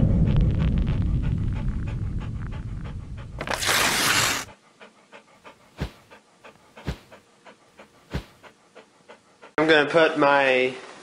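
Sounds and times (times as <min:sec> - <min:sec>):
dog panting: 0:00.8 - 0:10.2.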